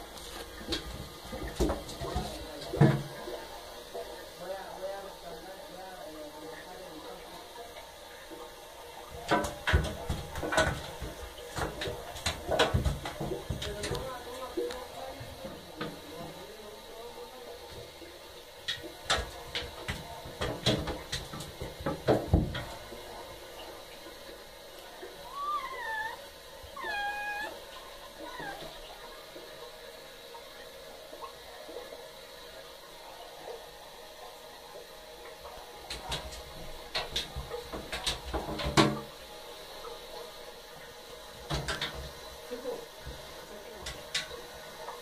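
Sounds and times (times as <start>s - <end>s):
cat paws scrabbling in bathtub: 0.0s - 3.4s, 9.1s - 16.4s, 18.6s - 23.1s.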